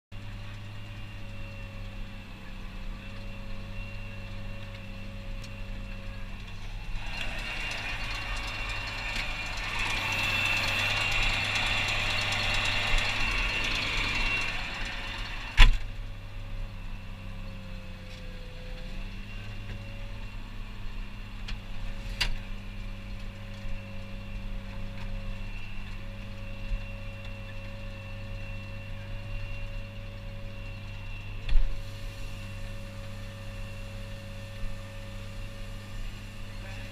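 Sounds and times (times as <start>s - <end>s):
tractor engine running: 0.2s - 16.2s.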